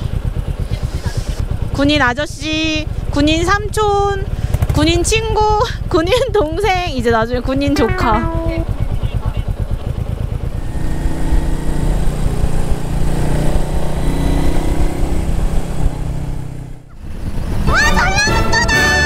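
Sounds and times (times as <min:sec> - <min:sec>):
motorcycle engine running: 0:00.0 - 0:18.9
loud high tone: 0:07.8 - 0:08.8.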